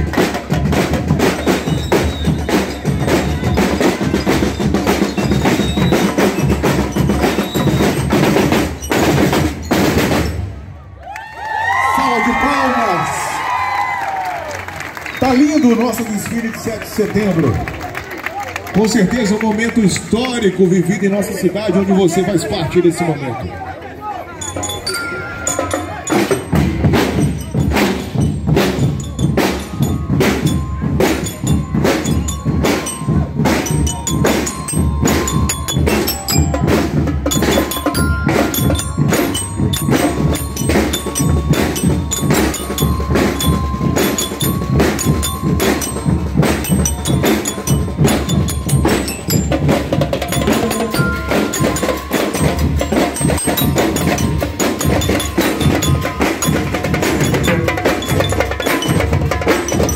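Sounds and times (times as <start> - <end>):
snare drums and cymbals march beat: 0.0 - 10.5, 24.6 - 59.9
bell lyres ringing: 1.1 - 10.6, 18.8 - 59.9.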